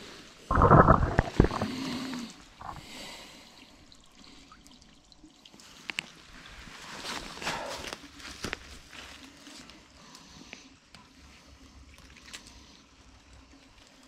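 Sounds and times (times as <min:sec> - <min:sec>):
water dripping and trickling: 0:00.0 - 0:14.0
loud water splash: 0:00.5 - 0:01.9.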